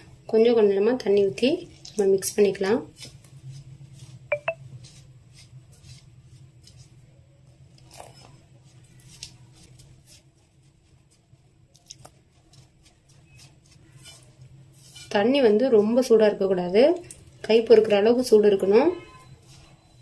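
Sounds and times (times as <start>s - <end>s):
hand mixing flour in bowl: 8.6s - 16.7s.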